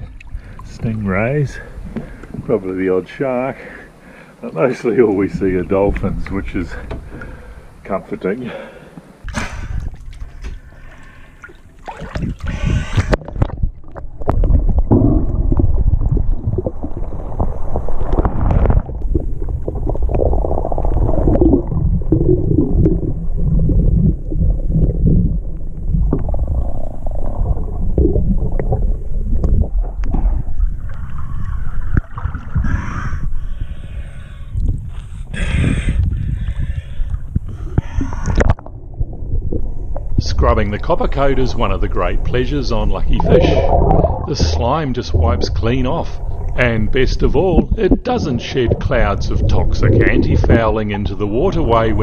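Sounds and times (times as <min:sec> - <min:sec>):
underwater rumbling and gurgling: 0:04.9 - 0:08.1, 0:09.6 - 0:52.0
water splashing: 0:09.3 - 0:32.8, 0:37.5 - 0:52.0.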